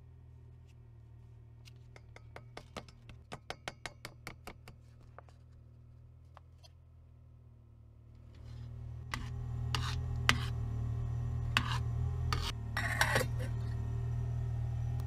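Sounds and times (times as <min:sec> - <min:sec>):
low hum: 0:05.0 - 0:15.0.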